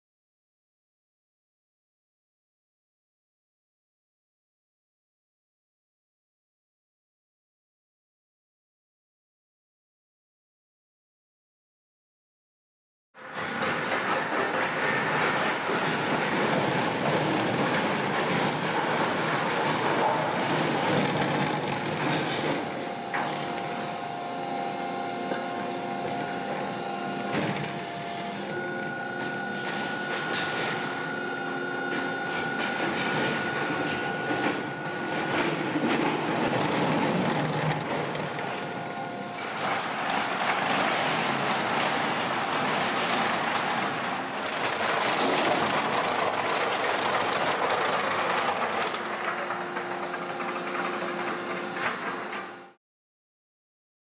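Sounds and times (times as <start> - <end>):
wood grinder crunching: 13.3 - 52.8
machine drive hum and whine: 14.8 - 52.8.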